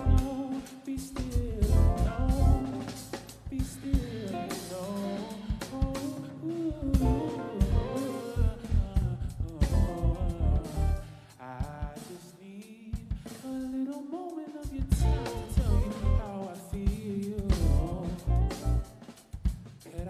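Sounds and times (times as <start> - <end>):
guitar: 0.0 - 11.3, 14.8 - 19.3
person singing: 0.0 - 19.0
drum kit: 0.0 - 20.0.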